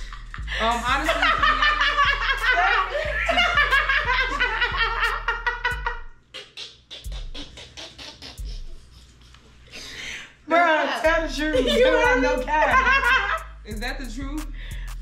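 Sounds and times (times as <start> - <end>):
women laughing: 0.0 - 6.0, 11.1 - 13.5.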